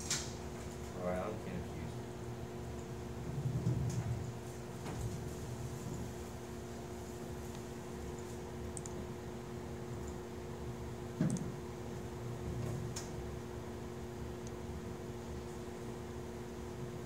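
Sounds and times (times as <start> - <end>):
fans and ventilation hum: 0.0 - 17.0.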